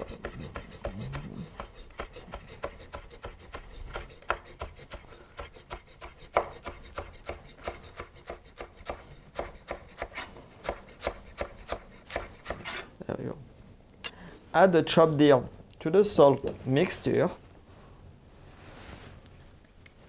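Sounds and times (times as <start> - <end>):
knife chopping on wooden board: 0.0 - 12.8.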